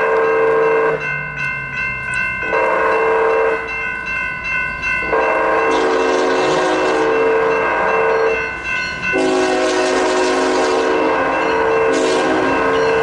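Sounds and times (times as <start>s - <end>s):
crossing warning bell ringing: 0.0s - 13.0s
locomotive air horn blasts: 2.5s - 3.6s, 5.2s - 8.1s, 9.2s - 12.8s.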